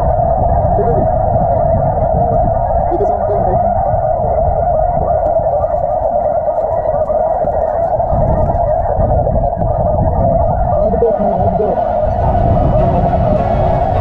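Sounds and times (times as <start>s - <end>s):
low rumble: 10.5s - 14.0s
chorus of goose calls: 10.8s - 14.0s.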